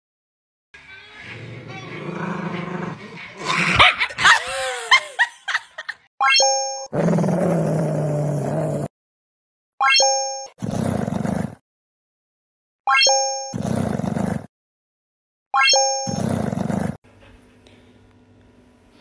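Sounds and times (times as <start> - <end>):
dog growling: 1.3 - 5.0, 7.0 - 8.9, 10.6 - 11.6, 13.6 - 14.5, 16.1 - 17.0
dog barking: 3.0 - 4.5.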